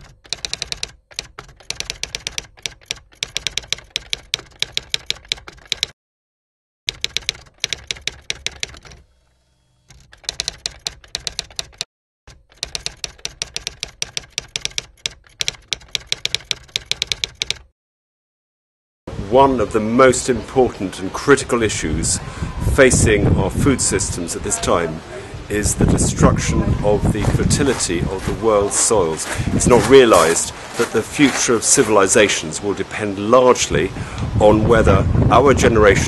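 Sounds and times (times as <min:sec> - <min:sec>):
typewriter keystroke clacks: 0:00.0 - 0:06.0, 0:06.9 - 0:09.0, 0:09.9 - 0:17.7.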